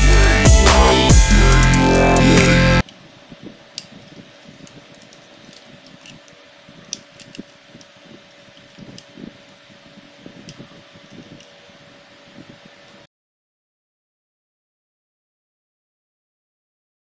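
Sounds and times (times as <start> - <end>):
faint steady hum: 0.0 - 13.1.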